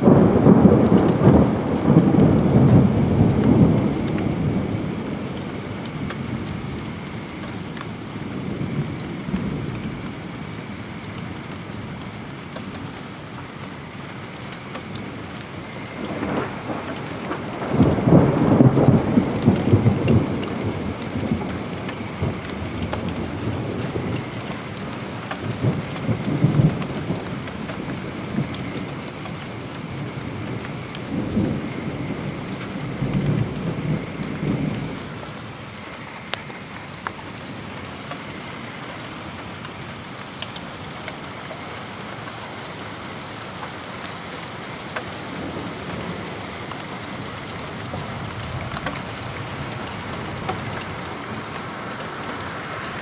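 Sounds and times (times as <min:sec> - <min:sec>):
thunder rumbling: 0:00.0 - 0:40.0, 0:44.8 - 0:53.0
steady rain: 0:00.0 - 0:53.0.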